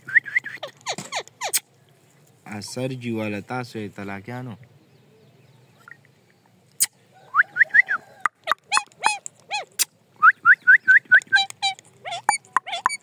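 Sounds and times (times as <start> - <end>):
parakeet harsh calls: 11.4 - 13.0.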